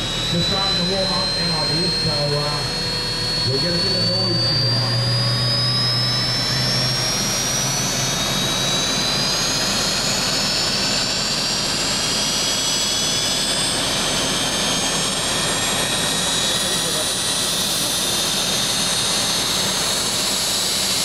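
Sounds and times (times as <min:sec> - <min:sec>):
jet engines roaring with whine: 0:00.0 - 0:21.0.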